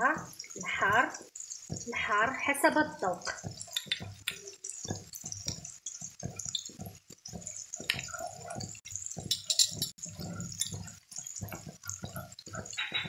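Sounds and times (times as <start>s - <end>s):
wooden spoon stirring thick sauce: 3.1s - 13.0s.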